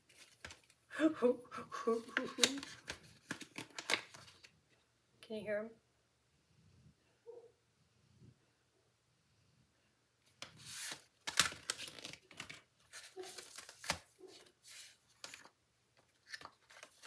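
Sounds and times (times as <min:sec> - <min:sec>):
plastic packaging rustling: 0:10.5 - 0:17.0.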